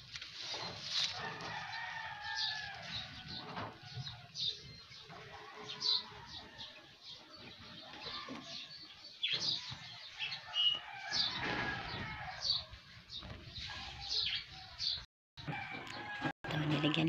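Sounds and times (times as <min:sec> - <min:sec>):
rustling noise: 0:00.0 - 0:02.0
small birds chirping: 0:01.7 - 0:15.0.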